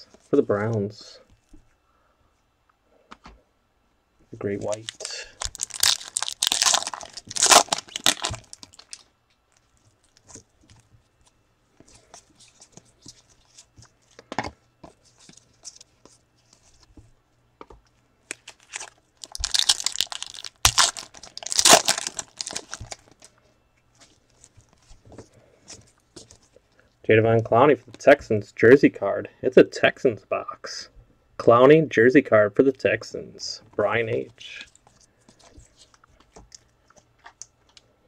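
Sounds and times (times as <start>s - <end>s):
cards rustling: 4.5s - 9.0s, 18.3s - 23.3s
foil pack crackling: 4.8s - 9.1s, 18.4s - 23.3s.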